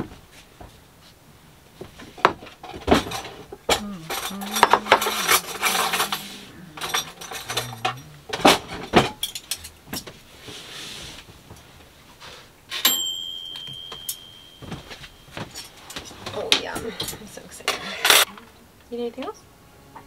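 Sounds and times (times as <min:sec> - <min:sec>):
tableware clinking: 0:02.8 - 0:10.1, 0:12.7 - 0:18.3
spoon scraping tray and plates: 0:04.0 - 0:09.7
high ringing tone: 0:12.8 - 0:15.9.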